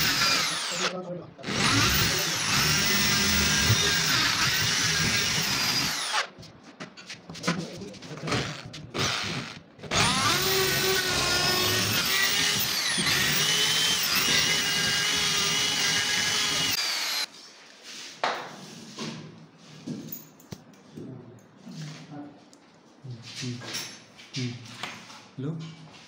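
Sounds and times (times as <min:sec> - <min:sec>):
power drill boring wood: 0:00.0 - 0:06.3, 0:08.3 - 0:17.3.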